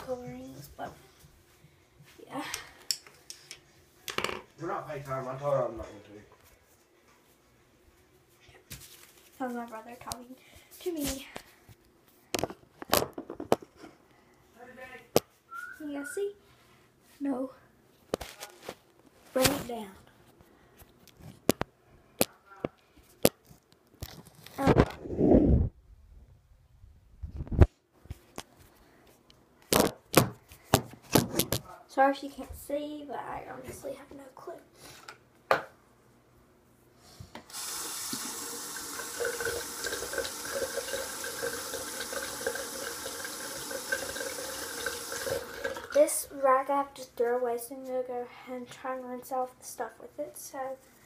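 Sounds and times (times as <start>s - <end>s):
water running into sink: 37.5s - 46.1s.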